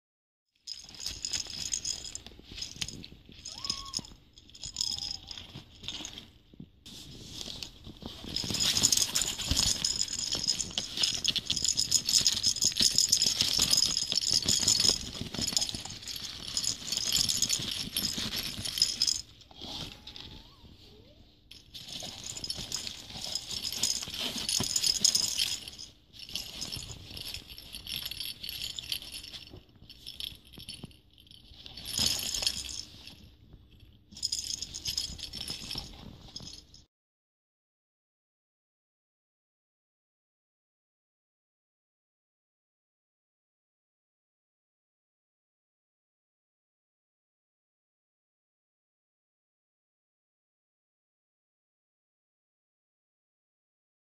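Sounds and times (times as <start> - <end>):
plastic toy ball rattling: 8.0 - 19.4, 21.5 - 33.2, 34.1 - 36.8.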